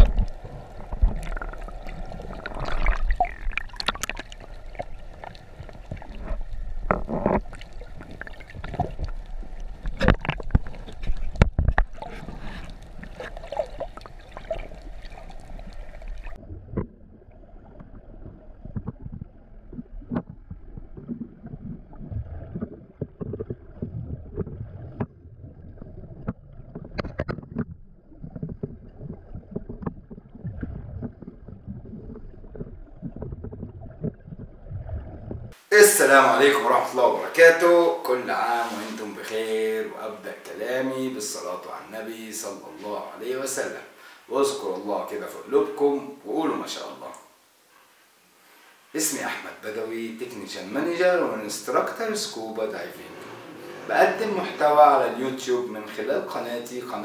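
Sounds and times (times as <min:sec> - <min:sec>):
sharp crackles and knocks: 0:00.0 - 0:35.6
muffled underwater water rushing: 0:00.0 - 0:40.5.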